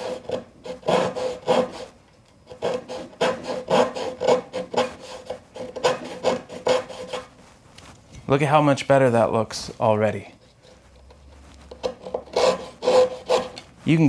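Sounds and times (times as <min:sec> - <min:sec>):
hand saw rasping: 0:00.0 - 0:01.9, 0:02.5 - 0:07.3, 0:11.7 - 0:13.7.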